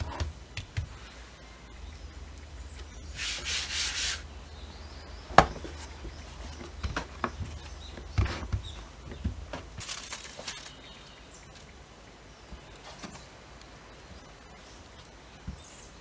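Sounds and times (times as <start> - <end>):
palms patting dough: 0.0 - 1.8, 5.3 - 9.9
hand rubbing flour on board: 3.1 - 4.2.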